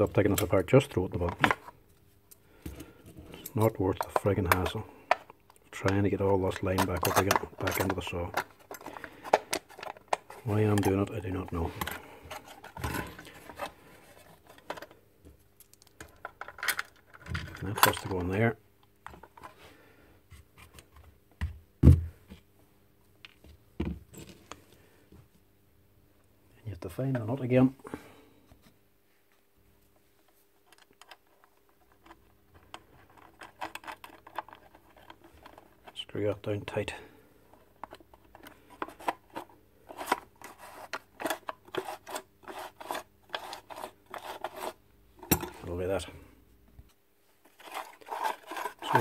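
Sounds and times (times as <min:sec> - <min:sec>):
metallic clicks and scrapes: 0:47.5 - 0:49.0.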